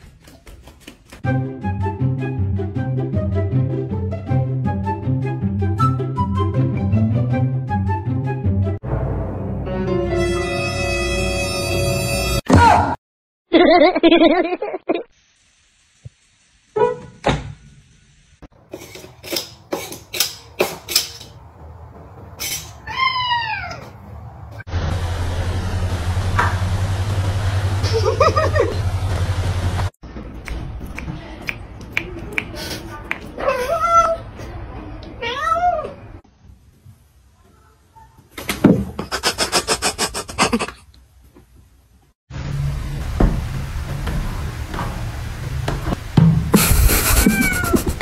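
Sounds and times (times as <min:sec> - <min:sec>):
cat meowing: 0:22.8 - 0:23.9, 0:47.1 - 0:48.0
cat hissing: 0:39.0 - 0:40.8, 0:46.6 - 0:48.0
kitten meowing: 0:47.1 - 0:48.0.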